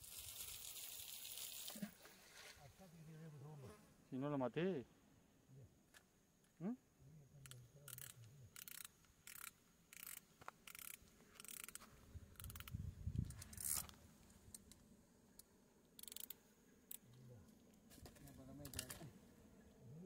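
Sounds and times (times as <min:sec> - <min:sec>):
fishing reel gears clicking: 0:00.0 - 0:01.7, 0:07.4 - 0:12.8, 0:13.4 - 0:13.8, 0:16.0 - 0:17.0.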